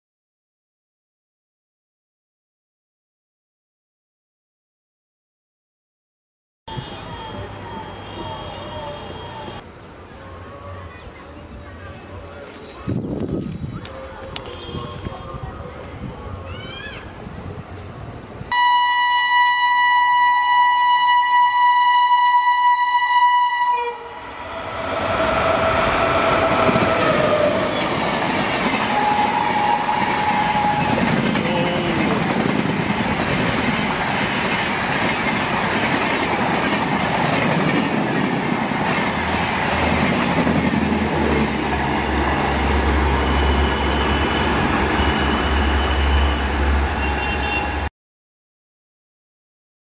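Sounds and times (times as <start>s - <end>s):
train passing on rails: 6.7s - 47.9s
train horn blast: 18.5s - 28.0s, 28.8s - 32.0s, 43.1s - 47.9s.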